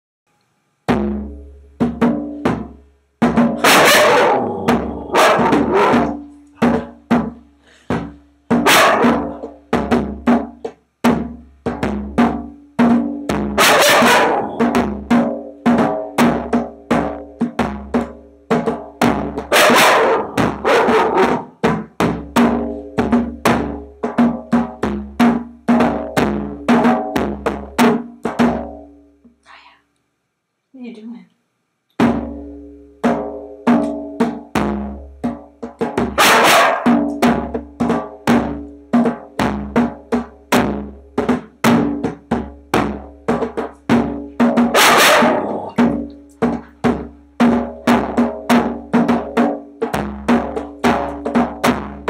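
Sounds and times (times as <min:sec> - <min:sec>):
djembe played by hand: 0:00.9 - 0:29.0, 0:32.0 - 0:52.0
young dog howling: 0:03.7 - 0:06.1.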